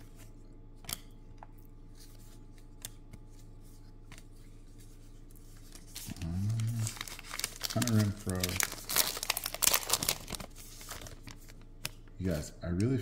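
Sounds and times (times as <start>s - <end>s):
faint low hum: 0.0s - 13.0s
cards flipped through by hand: 1.9s - 12.1s.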